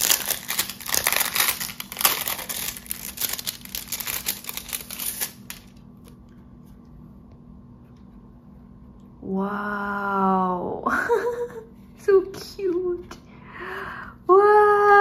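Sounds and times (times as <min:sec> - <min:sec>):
plastic sleeve crinkling: 0:00.0 - 0:06.2
faint steady hum: 0:00.0 - 0:15.0.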